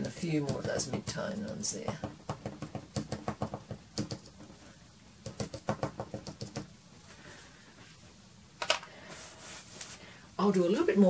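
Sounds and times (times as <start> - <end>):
pastel stick tapping on paper: 0.0 - 4.6, 5.2 - 6.7.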